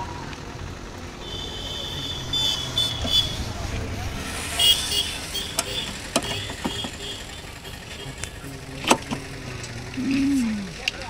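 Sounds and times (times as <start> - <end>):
sharp clicks and knocks: 5.5 - 7.0.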